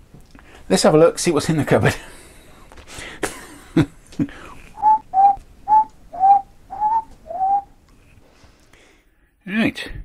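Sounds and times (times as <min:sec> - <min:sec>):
man whistling a tune: 0:04.8 - 0:07.7.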